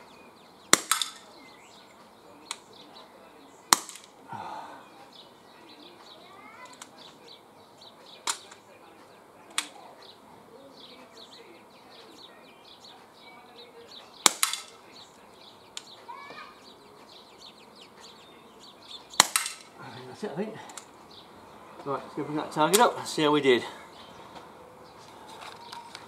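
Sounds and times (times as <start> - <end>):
air revolver firing pellets: 0.7 - 1.3, 3.7 - 4.2, 14.2 - 14.8, 19.2 - 19.8.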